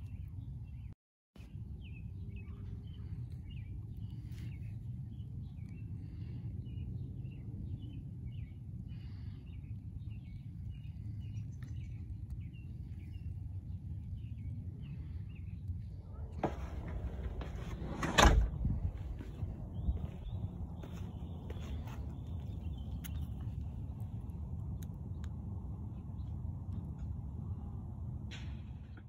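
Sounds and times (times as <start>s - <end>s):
small birds chirping: 0.0s - 24.9s
steady low rumble: 1.6s - 28.3s
loud rustling knock: 16.4s - 22.0s.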